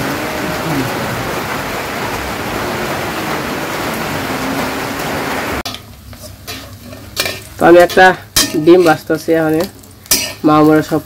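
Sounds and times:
rain on water: 0.0 - 5.7
egg sizzling in a wok: 5.6 - 11.0.

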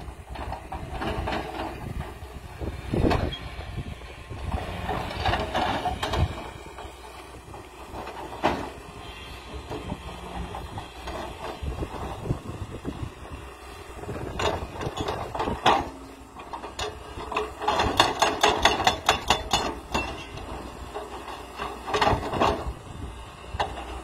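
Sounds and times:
excavator engine running: 0.0 - 24.0
hydraulic breaker hammering rock: 14.1 - 22.8.

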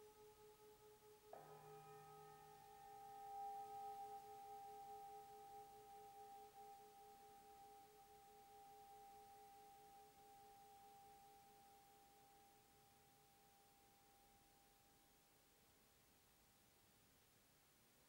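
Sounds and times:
singing bowl ringing: 1.3 - 14.4.

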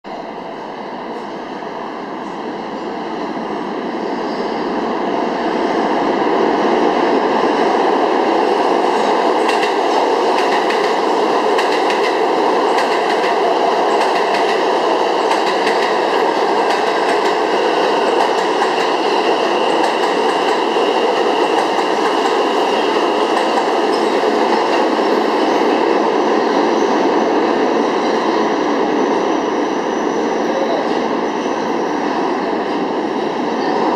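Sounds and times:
subway train rumbling: 0.0 - 33.9
wheels clacking over rail joints: 9.4 - 19.0.

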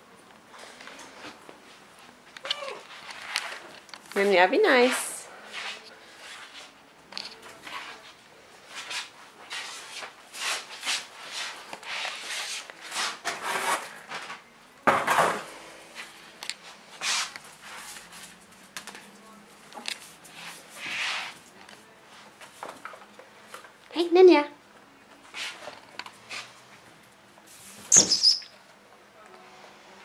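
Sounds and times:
claws scrabbling on tiled floor: 2.0 - 14.5.

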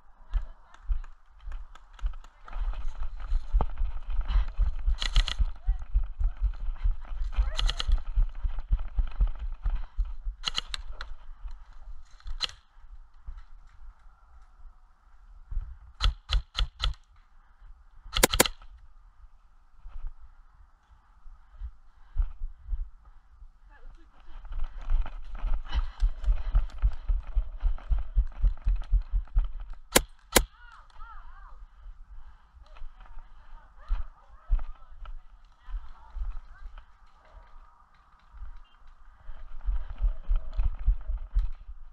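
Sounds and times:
running footsteps: 0.0 - 18.9, 19.8 - 41.9
airsoft gun shots: 18.1 - 18.6.

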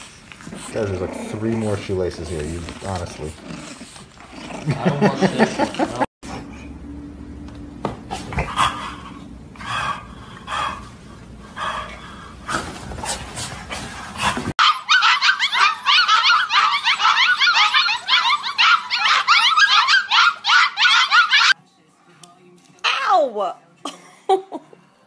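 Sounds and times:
puppies squealing and whimpering: 14.6 - 21.6.

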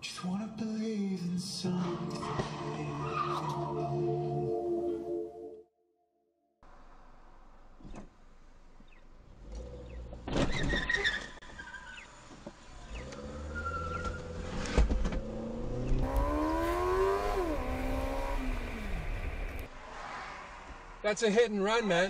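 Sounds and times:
car engine revving hard: 12.9 - 19.7
car crash crunch: 13.9 - 21.0.

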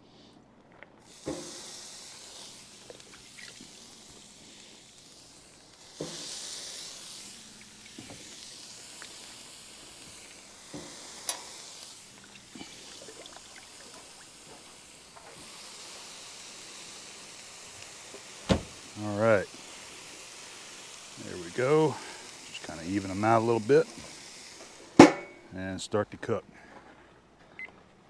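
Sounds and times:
corn sizzling on grill: 0.0 - 27.6
knocks on grill grate: 25.0 - 25.4.

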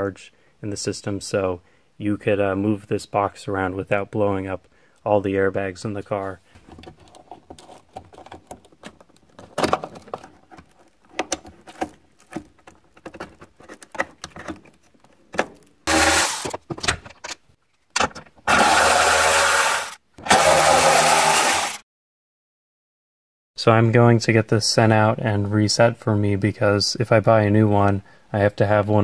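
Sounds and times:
cordless power tool running: 15.9 - 16.5, 18.5 - 21.8.

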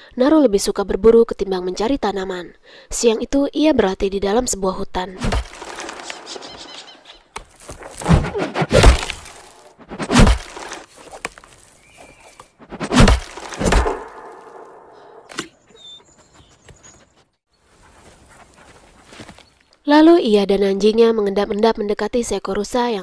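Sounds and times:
tomahawk thunking into wood: 5.2 - 6.3, 7.4 - 15.5.

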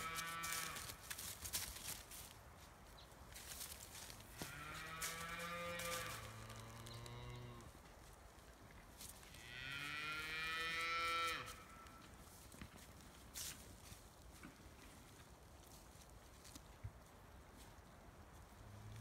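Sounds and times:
cattle mooing: 4.4 - 7.7.

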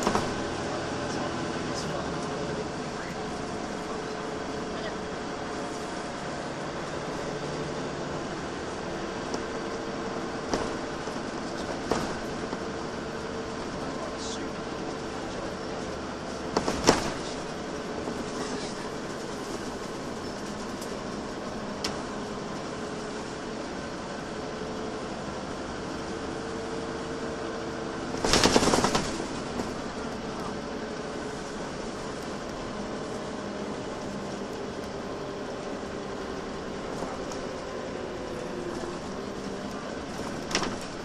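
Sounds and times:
bus engine running: 0.0 - 41.0.

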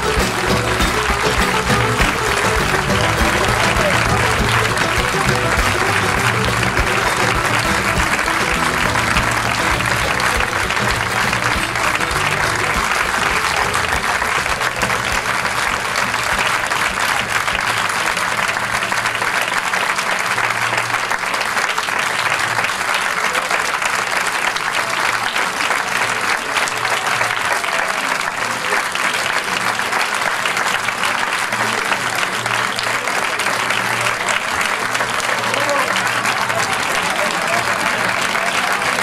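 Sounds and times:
music playing: 0.0 - 19.0
audience applauding: 0.0 - 39.0.

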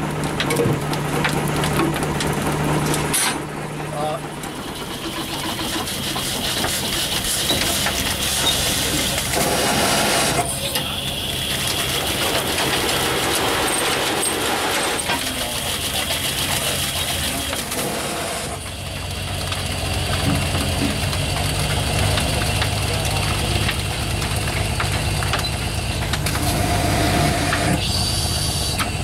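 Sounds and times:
steam engine running: 0.0 - 29.0.

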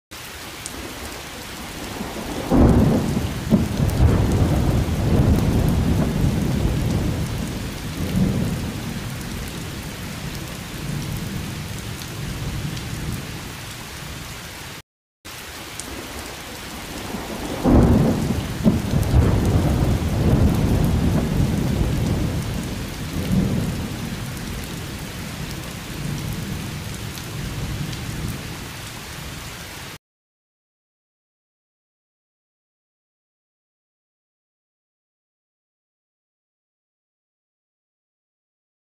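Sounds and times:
steady rain: 0.1 - 30.0
rolling thunder: 1.8 - 13.3, 16.9 - 28.4.

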